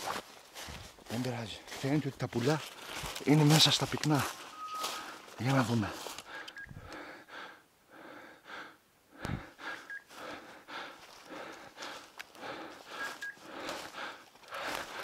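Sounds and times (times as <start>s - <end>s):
footsteps in dry leaves: 0.0s - 6.4s, 11.0s - 15.0s
short high beep: 4.5s - 5.0s
person breathing hard: 4.8s - 15.0s.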